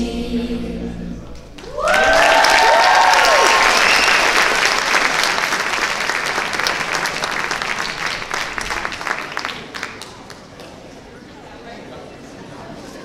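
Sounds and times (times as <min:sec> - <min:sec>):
audience applauding: 0:01.6 - 0:10.8.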